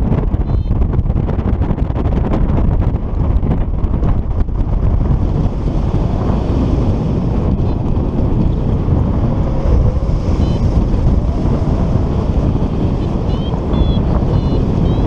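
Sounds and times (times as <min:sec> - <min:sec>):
wind rushing over microphone: 0:00.0 - 0:15.0.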